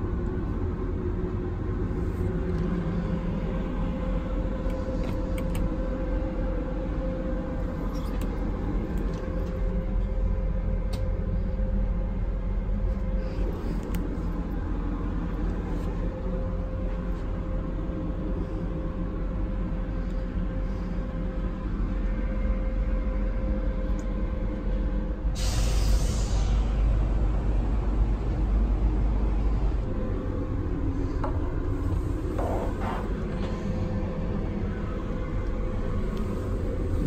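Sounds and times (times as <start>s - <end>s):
faint constant tone: 0.0s - 25.4s
train coach low hum: 0.0s - 37.0s
hiss of air: 25.4s - 26.9s.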